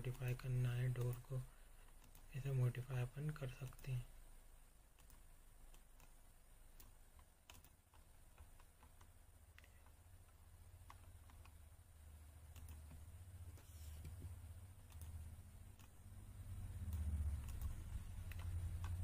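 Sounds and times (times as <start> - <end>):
low steady hum: 0.0 - 19.0
mouse and keyboard clicks: 5.0 - 6.2, 6.8 - 11.6, 12.5 - 13.0, 16.9 - 19.0.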